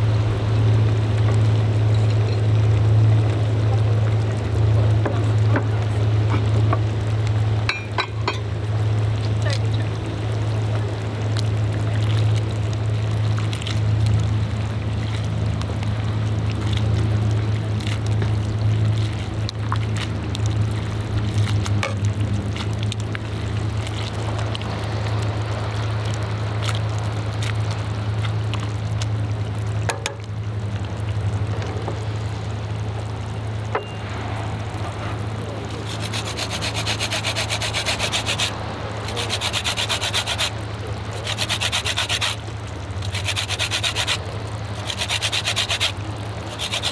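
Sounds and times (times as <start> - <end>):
low hum: 0.0 - 46.9
lemon rasping on grater: 35.8 - 38.5, 39.1 - 40.5, 41.2 - 42.4, 43.0 - 44.2, 44.8 - 46.9.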